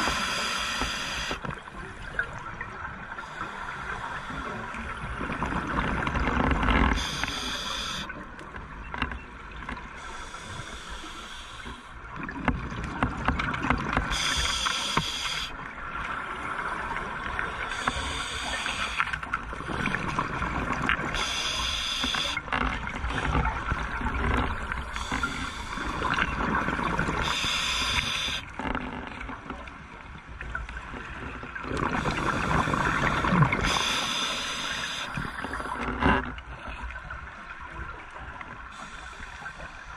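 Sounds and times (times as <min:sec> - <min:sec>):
regulator hissing inhale: 0:00.0 - 0:01.4, 0:07.0 - 0:08.1, 0:10.0 - 0:12.0, 0:14.1 - 0:15.5, 0:17.7 - 0:19.2, 0:21.2 - 0:22.4, 0:25.0 - 0:25.9, 0:27.2 - 0:28.4, 0:32.1 - 0:35.8, 0:38.7 - 0:39.9
gurgling exhaled bubbles: 0:31.6 - 0:36.2.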